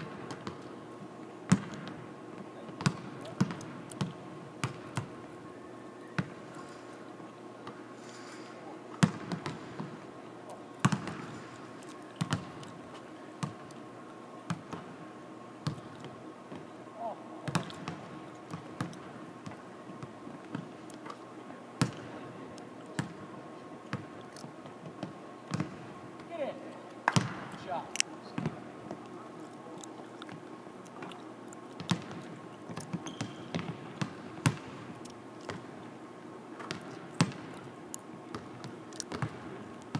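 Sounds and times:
steady background hum: 0.0s - 39.9s
basketball bouncing on hardwood: 9.0s - 9.9s, 17.5s - 18.9s, 27.1s - 27.5s, 31.8s - 32.2s, 32.8s - 34.8s, 38.3s - 39.4s
high shoe squeak: 33.0s - 33.6s.

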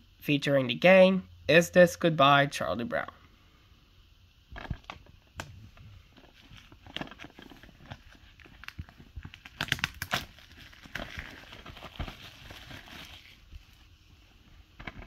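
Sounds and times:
plastic shrink wrap crinkling: 4.5s - 15.0s.

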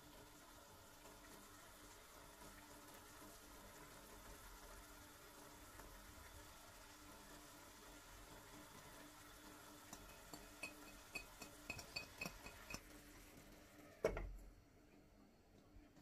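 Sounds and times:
glass lid clanking on pan: 9.9s - 12.9s.

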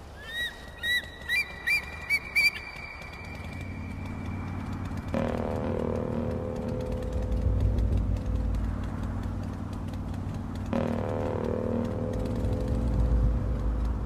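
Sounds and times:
bird chirping: 0.0s - 5.1s
steady low drone: 0.0s - 14.0s
low rumble: 1.1s - 14.0s.

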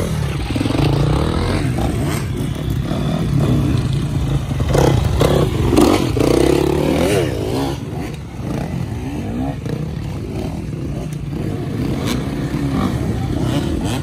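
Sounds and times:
dirt bike engines revving: 0.0s - 14.0s.

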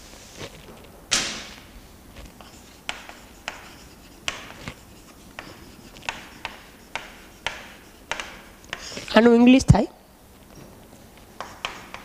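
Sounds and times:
chalk writing on blackboard: 2.2s - 9.1s, 11.2s - 12.0s.

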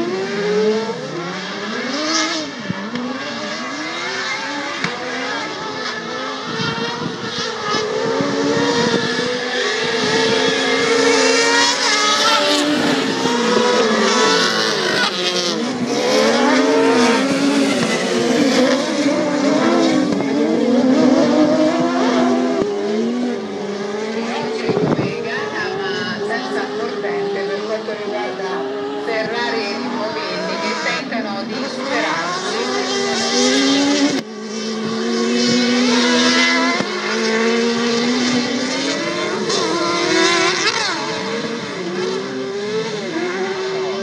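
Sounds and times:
race car engines revving: 0.0s - 44.0s.

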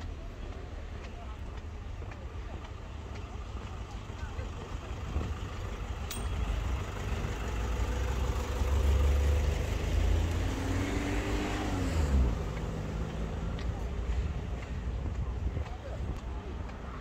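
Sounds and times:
vehicle driving past: 6.7s - 13.5s.

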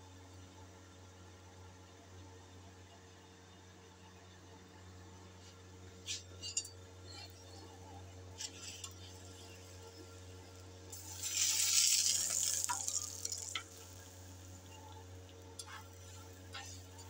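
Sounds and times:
steady low hum: 0.0s - 17.0s
fat sizzling hiss in flames: 10.9s - 14.7s.

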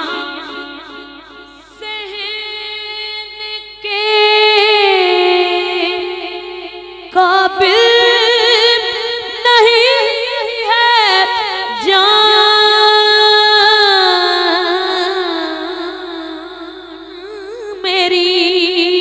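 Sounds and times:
person singing unaccompanied: 7.1s - 19.0s.

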